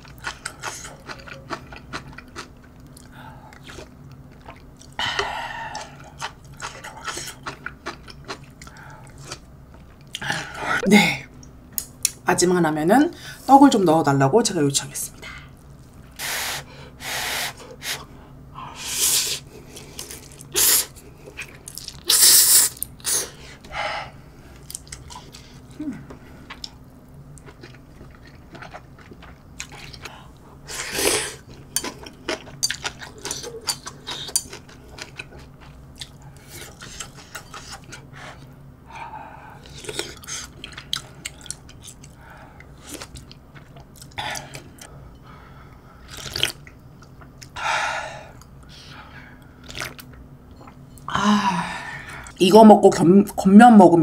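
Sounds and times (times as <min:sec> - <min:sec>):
person chewing: 0:00.0 - 0:10.8, 0:19.2 - 0:23.7, 0:24.6 - 0:38.5, 0:39.5 - 0:44.9, 0:46.0 - 0:47.6, 0:49.4 - 0:51.1.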